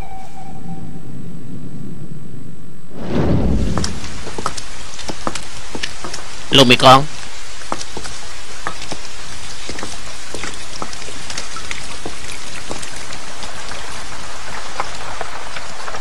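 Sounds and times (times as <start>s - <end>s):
heavy rain: 3.0s - 16.0s
raindrops ticking and splashing: 3.5s - 16.0s.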